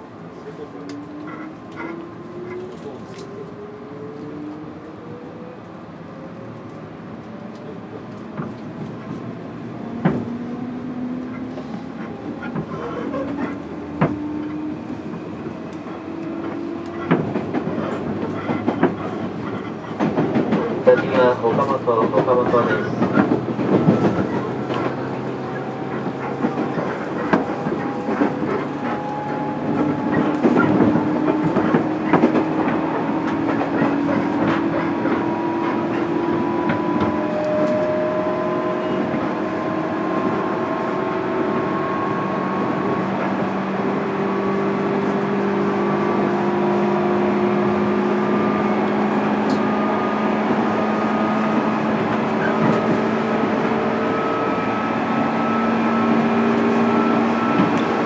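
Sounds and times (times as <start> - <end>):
train wheels running noise: 7.3 - 42.3
wheels clacking over rail joints: 8.2 - 37.7
traction motors whining: 9.2 - 43.7.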